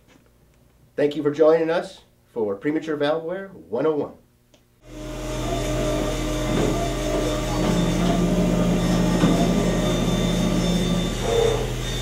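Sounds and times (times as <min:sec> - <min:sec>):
machinery humming drone: 0:04.8 - 0:12.0.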